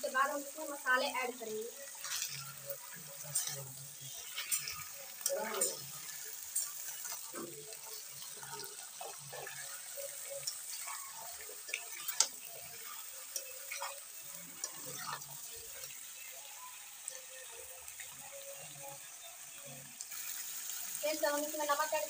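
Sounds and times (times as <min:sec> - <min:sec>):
chicken and onions sizzling in oil: 0:00.0 - 0:22.0
metal spatula scraping a pan: 0:01.9 - 0:15.9.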